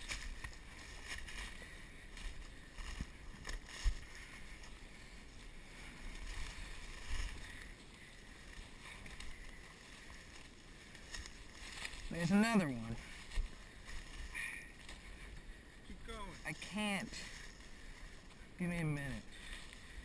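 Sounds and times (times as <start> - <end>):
footsteps through dry brush: 0.0 - 20.0.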